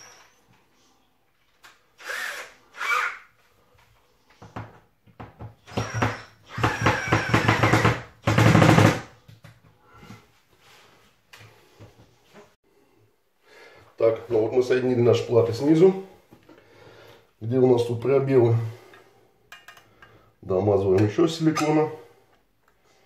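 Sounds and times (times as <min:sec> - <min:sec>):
drill driving screws: 0:02.0 - 0:03.3, 0:05.6 - 0:09.0.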